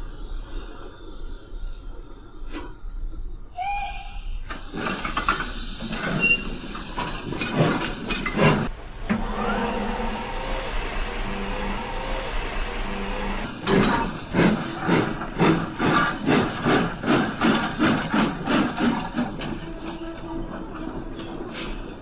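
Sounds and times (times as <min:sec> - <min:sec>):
steam engine chuffs and hissing: 0:08.4 - 0:13.5.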